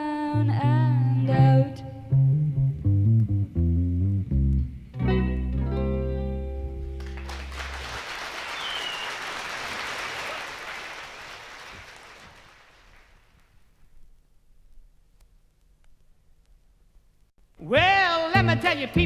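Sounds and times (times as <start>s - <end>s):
audience applauding: 7.0s - 13.4s.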